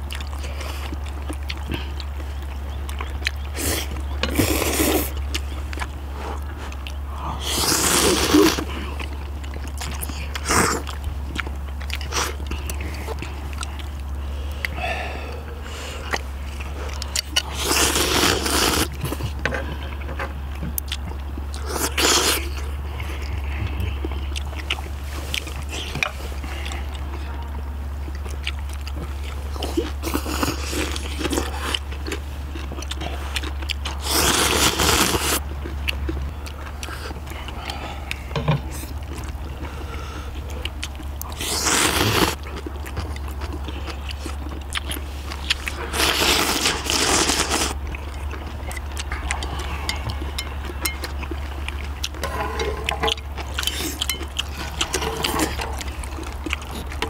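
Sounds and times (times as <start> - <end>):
chewing: 0.0 - 57.0
steady low hum: 0.0 - 57.0
slurping noodles: 7.3 - 8.8, 17.2 - 19.3, 33.0 - 35.4, 41.3 - 42.4, 45.0 - 47.8.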